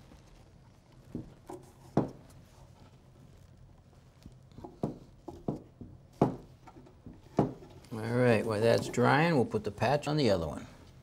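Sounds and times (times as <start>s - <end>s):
plastic clamps knocking on wood: 4.6s - 7.7s.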